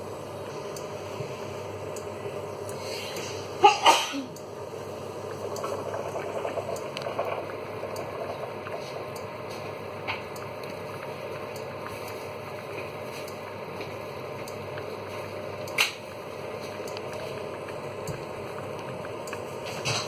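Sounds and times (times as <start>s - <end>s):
water boiling and bubbling: 0.0s - 20.0s.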